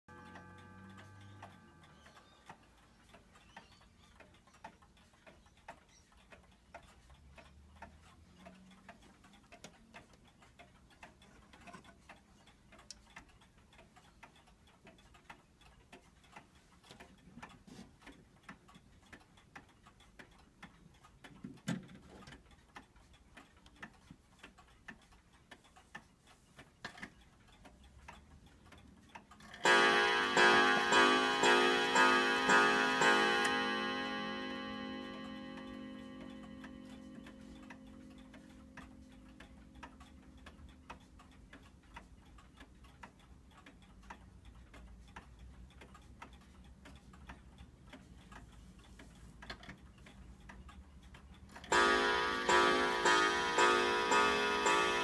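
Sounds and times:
clock chime ringing: 0:00.1 - 0:02.4, 0:29.6 - 0:39.3, 0:51.7 - 0:55.0
wall clock ticking: 0:00.1 - 0:55.0.

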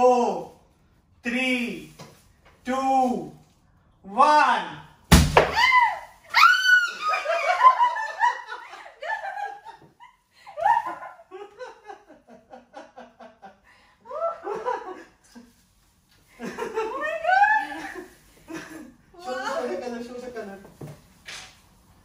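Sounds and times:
woman laughing: 0:06.9 - 0:12.3, 0:16.4 - 0:19.7.

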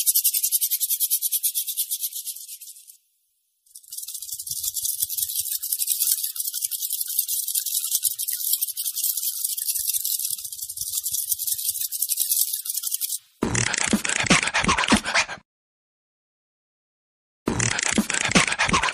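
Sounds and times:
crickets chirping: 0:03.6 - 0:13.3.

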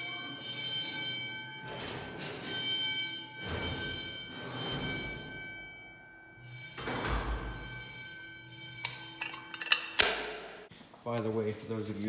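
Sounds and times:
fire alarm horn: 0:00.0 - 0:09.6.

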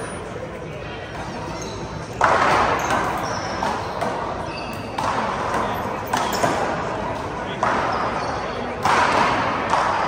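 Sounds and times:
sneaker squeaks on court floor: 0:01.1 - 0:08.9.

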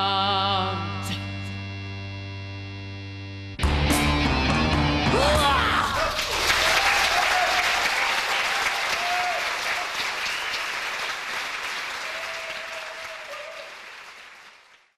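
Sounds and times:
audience applauding: 0:05.8 - 0:14.9.

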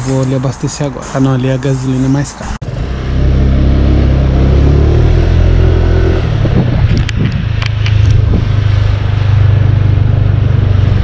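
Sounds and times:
scooter engine running: 0:02.7 - 0:11.0.

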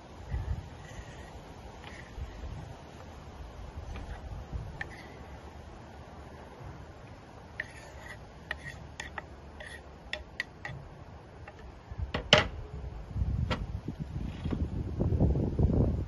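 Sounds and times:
knife scraping cutting board: 0:00.8 - 0:02.2, 0:03.9 - 0:04.2, 0:04.8 - 0:05.3, 0:07.6 - 0:10.8.

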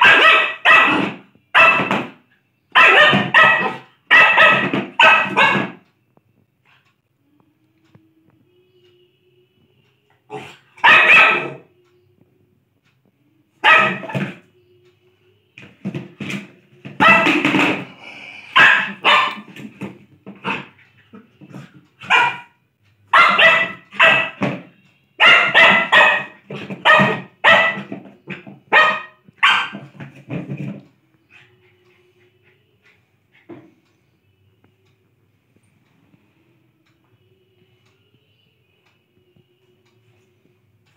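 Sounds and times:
dog barking: 0:00.0 - 0:02.0, 0:02.8 - 0:05.8, 0:10.3 - 0:11.6, 0:13.6 - 0:14.4, 0:17.0 - 0:17.4, 0:18.6 - 0:19.5, 0:20.4 - 0:20.7, 0:22.0 - 0:24.5, 0:25.2 - 0:28.0, 0:28.7 - 0:29.9.

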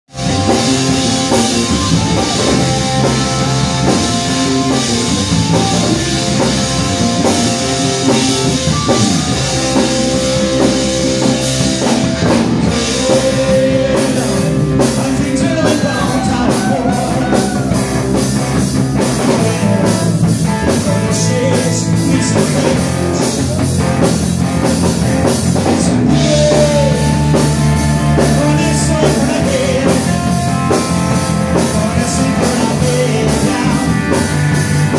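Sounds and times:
live rock band: 0:00.1 - 0:34.9
person singing: 0:11.2 - 0:18.0, 0:19.0 - 0:23.7, 0:25.9 - 0:34.5.

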